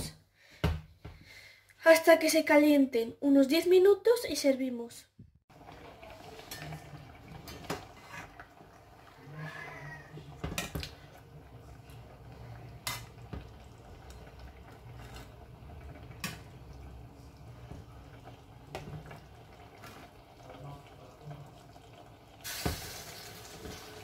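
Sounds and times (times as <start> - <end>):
metal spatula scraping metal pot: 6.3 - 8.5, 14.8 - 15.4.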